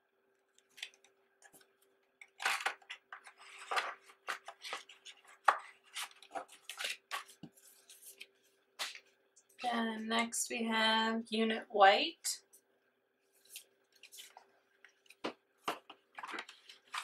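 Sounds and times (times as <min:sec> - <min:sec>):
photo cards scraping and sliding: 0:02.5 - 0:09.0.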